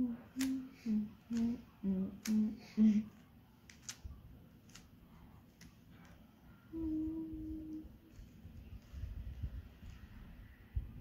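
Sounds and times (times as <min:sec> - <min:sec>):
person humming a tune: 0:00.0 - 0:03.2, 0:06.7 - 0:08.3.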